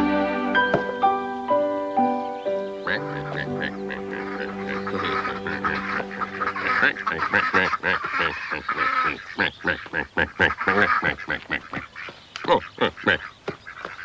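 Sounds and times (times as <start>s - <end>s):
held musical chord: 0.0s - 8.0s
ducks quacking: 2.8s - 14.0s.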